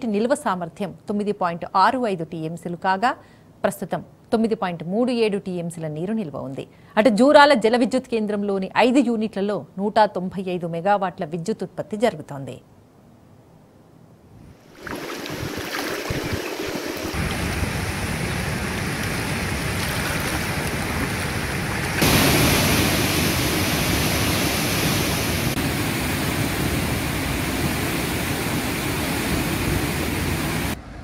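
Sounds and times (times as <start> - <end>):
floodwater rushing through spillway: 14.7 - 30.8.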